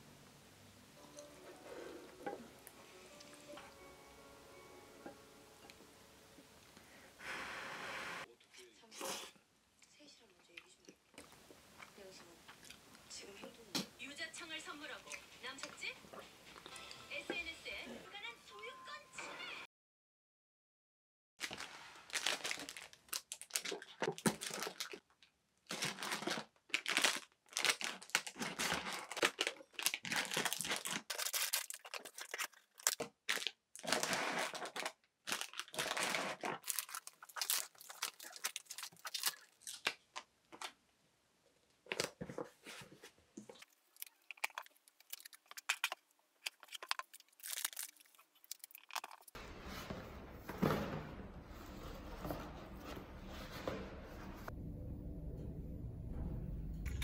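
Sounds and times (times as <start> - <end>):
cellophane bags crinkling: 21.4 - 40.8, 43.4 - 49.4
cardboard boxes handled and folded: 41.9 - 43.6, 49.4 - 54.5.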